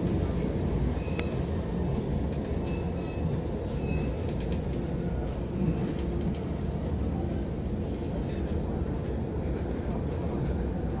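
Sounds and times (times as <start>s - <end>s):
train coach rumbling on rails: 0.0s - 11.0s
faint high wheel squeals: 0.9s - 1.6s, 2.5s - 4.3s.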